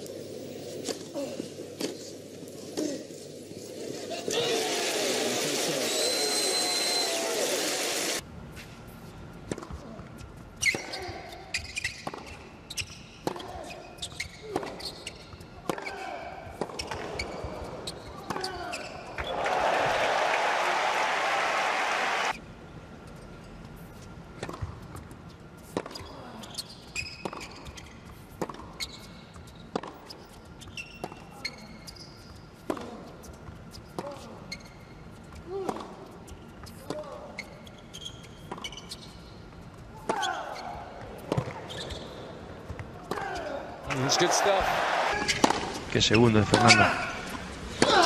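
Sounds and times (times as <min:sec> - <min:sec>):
shoes squeaking on court: 0:07.8 - 0:22.3, 0:23.0 - 0:47.8
racket hitting tennis ball: 0:45.2 - 0:45.8.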